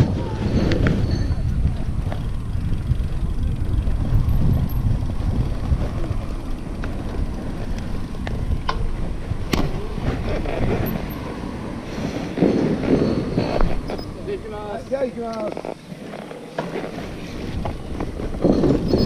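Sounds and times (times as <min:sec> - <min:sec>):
wind buffeting microphone: 0:00.0 - 0:15.2
bicycle tyre road rumble: 0:00.0 - 0:19.0.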